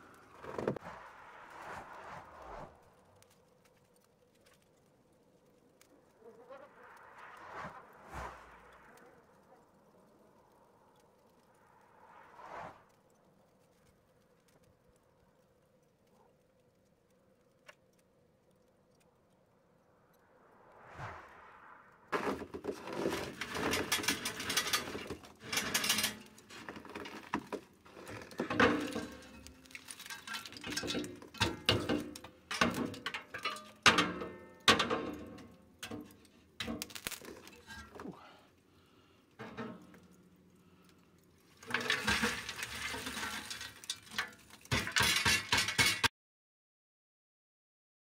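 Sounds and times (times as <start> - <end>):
metal chimney scraping on grate: 22.1 - 38.3, 39.4 - 40.2, 41.5 - 46.1
charcoal rattling: 22.1 - 46.1
coals clattering onto tray: 22.2 - 38.4, 39.3 - 40.2, 41.4 - 46.1.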